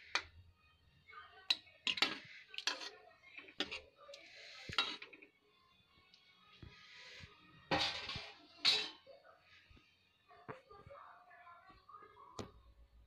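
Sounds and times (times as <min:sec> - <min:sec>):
metal spoon scraping a pan: 0:00.0 - 0:00.4, 0:01.4 - 0:05.3, 0:06.6 - 0:09.1
thick gravy being stirred: 0:01.4 - 0:05.4.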